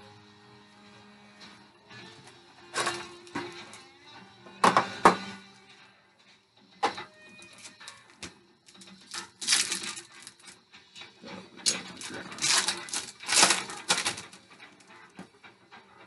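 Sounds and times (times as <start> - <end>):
cards rustling: 8.8 - 10.4, 11.7 - 14.4
foil wrapper crinkling: 9.0 - 10.5, 11.7 - 14.4.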